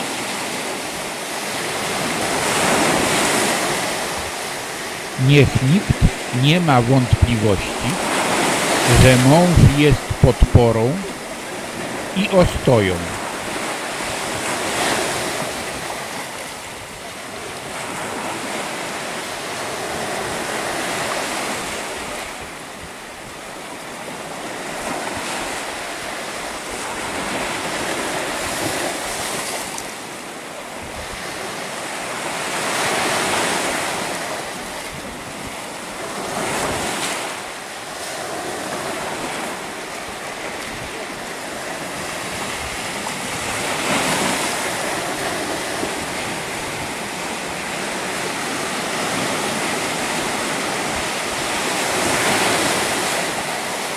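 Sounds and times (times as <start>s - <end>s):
sea waves washing up beach: 0.0s - 30.4s.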